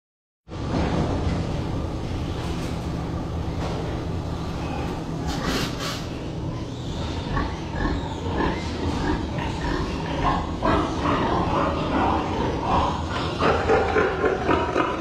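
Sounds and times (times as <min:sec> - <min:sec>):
ventilation fans droning: 0:00.5 - 0:15.0
short hissing or clattering: 0:05.3 - 0:06.1.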